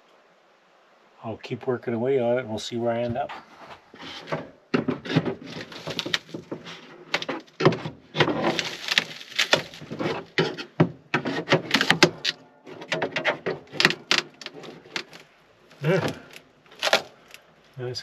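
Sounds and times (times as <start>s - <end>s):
knocks clicks and scrapes of tools: 3.9s - 17.4s.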